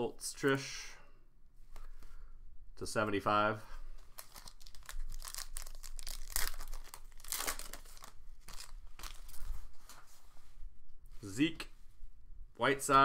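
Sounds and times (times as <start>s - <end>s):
plastic wrapper tearing and crinkling: 4.1s - 9.5s.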